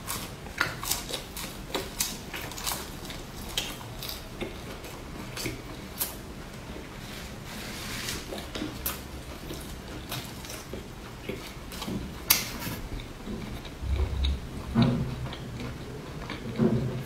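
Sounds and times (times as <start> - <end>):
wet chewing: 0.0 - 7.4, 8.2 - 17.0
food being handled and wrapped: 0.0 - 13.6.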